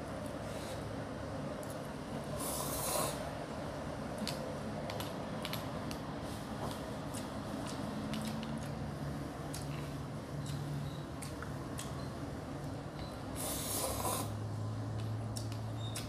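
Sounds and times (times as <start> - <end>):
slurping noodles: 2.4 - 3.2, 13.4 - 14.4
chewing: 6.7 - 8.8, 11.2 - 12.1.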